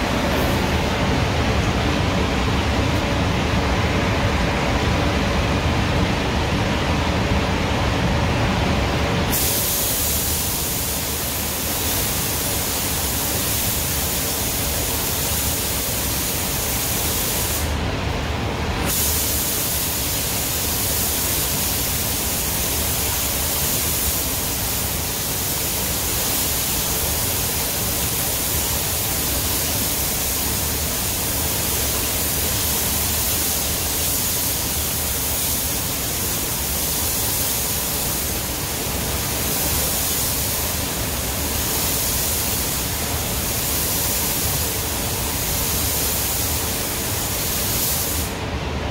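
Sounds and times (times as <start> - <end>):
spray booth air rushing: 0.0 - 2.7, 9.2 - 17.9, 18.7 - 48.5
spray gun hissing: 9.3 - 17.8, 18.8 - 48.4.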